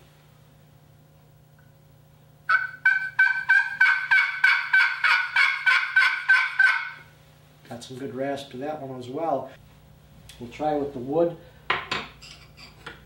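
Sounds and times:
turkey call raspy yelps: 2.5 - 7.1.

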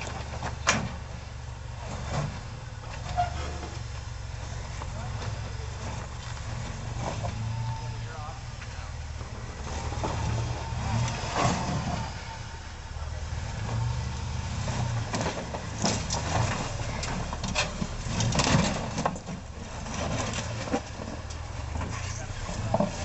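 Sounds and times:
truck engine running at low speed: 0.0 - 23.0
tyres grinding on stone: 13.4 - 23.0.

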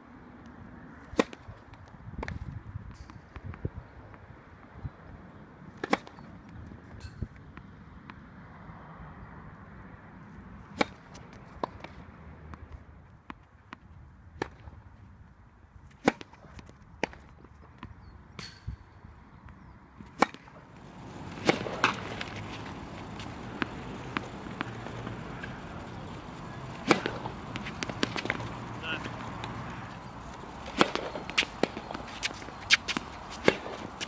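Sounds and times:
background noise: 0.0 - 34.0
tennis racket hitting ball: 1.0 - 1.4, 5.8 - 6.2, 10.7 - 11.9, 20.0 - 34.0
tennis ball bounces: 1.0 - 2.4, 5.8 - 6.6, 10.6 - 14.7, 19.5 - 34.0.

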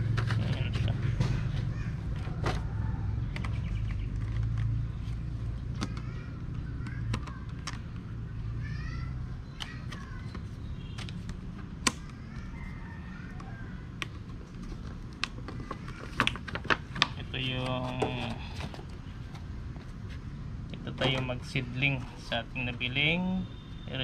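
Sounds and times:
birds chirping: 0.5 - 14.2.

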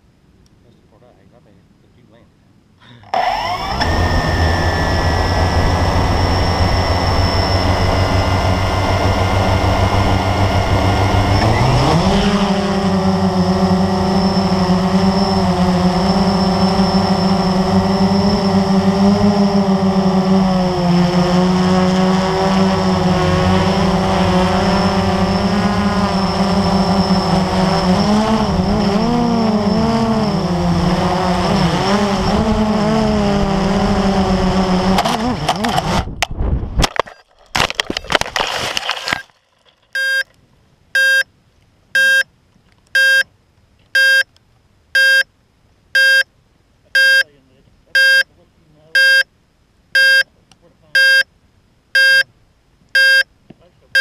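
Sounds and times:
drone motors and propellers whining: 3.0 - 37.0.

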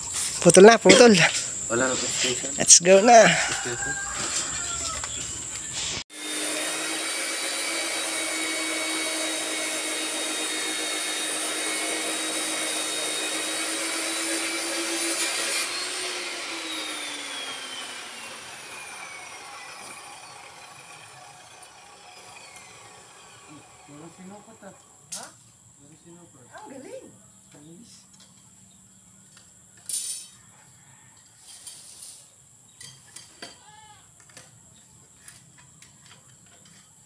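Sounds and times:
angle grinder cutting steel: 0.0 - 24.8.

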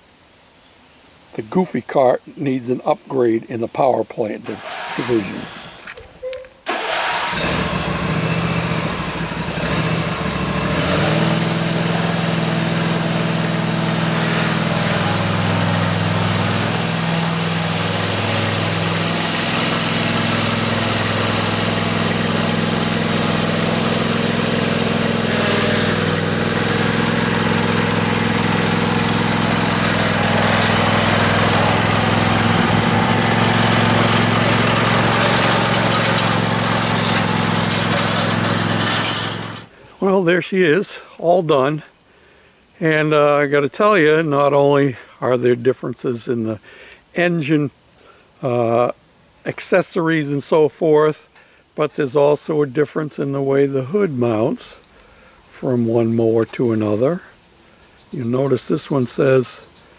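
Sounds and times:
riding lawn mower engine: 3.6 - 40.8, 52.0 - 59.9.

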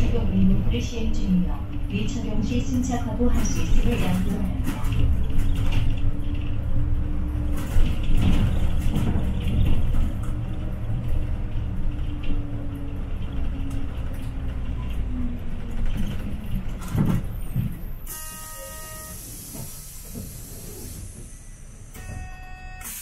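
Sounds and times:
bus engine rumbling: 0.0 - 23.0
short tone: 18.1 - 19.3, 22.0 - 23.0
air brake hiss: 18.7 - 21.8, 22.8 - 23.0.

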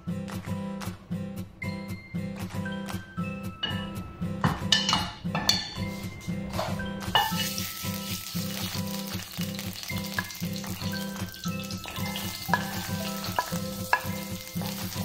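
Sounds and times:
background music with steady beat: 0.0 - 15.0
oil sizzling in a frying pan: 7.1 - 15.0.

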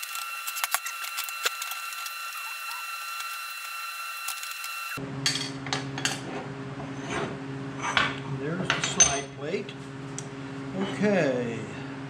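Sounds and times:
metal tools clinking on steel table: 7.8 - 9.4.

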